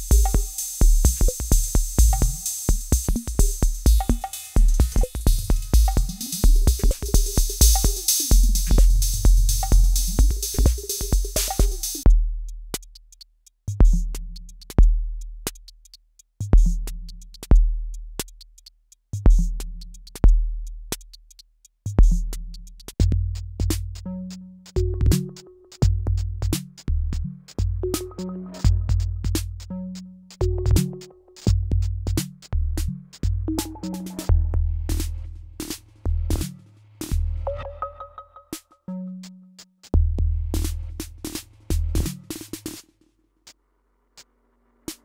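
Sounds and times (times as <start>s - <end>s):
deep kick drums: 0.0s - 12.3s
bright hi-hat hits: 0.0s - 20.3s, 39.9s - 45.0s
drum machine pattern: 0.0s - 38.7s, 39.9s - 43.0s.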